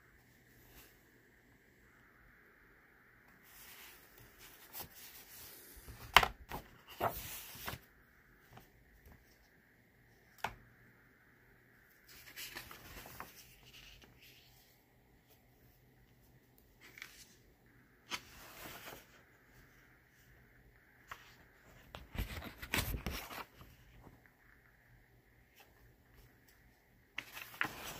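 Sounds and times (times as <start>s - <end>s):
book pages rustling: 3.4s - 9.5s, 11.9s - 17.4s, 18.1s - 20.3s, 21.0s - 24.6s, 25.4s - 27.9s
book slaps and clicks: 6.0s - 6.7s.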